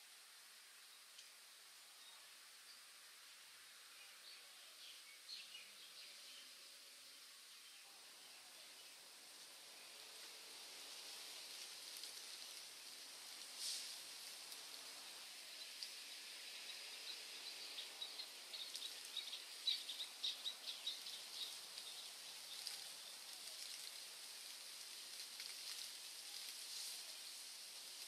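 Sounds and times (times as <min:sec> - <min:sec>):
forest ambience hiss: 0:00.0 - 0:28.0
bird chirping: 0:16.6 - 0:23.2.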